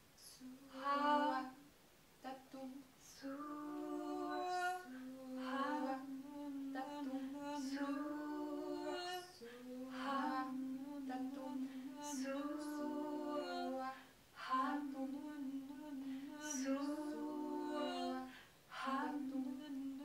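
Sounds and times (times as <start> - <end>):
women singing held notes: 0.0 - 20.0.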